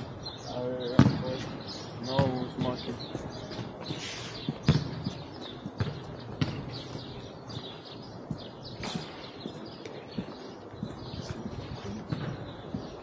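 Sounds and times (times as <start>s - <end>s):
small birds chirping: 0.0s - 13.0s
ball hitting hard ground: 1.0s - 1.5s, 3.6s - 6.8s.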